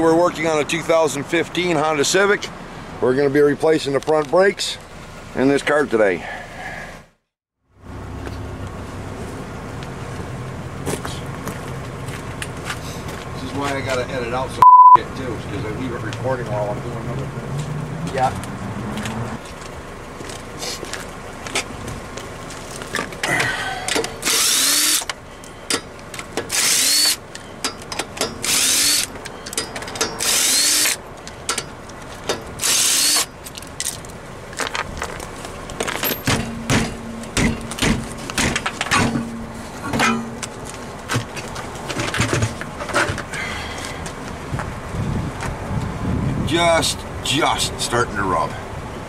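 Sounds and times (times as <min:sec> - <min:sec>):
impact wrench whirring: 0:24.2 - 0:25.1, 0:26.5 - 0:27.2, 0:28.3 - 0:29.1, 0:30.2 - 0:31.0, 0:32.6 - 0:33.3
knocks and clatter of nuts and wheel: 0:25.0 - 0:43.5.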